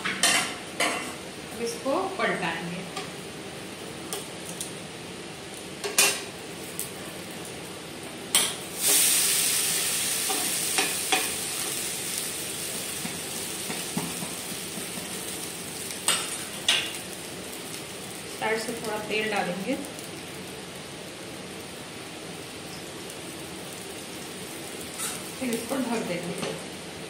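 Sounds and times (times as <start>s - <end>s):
batter sizzling in a pan: 0.2s - 27.0s
spatulas scraping a pan: 25.0s - 25.2s.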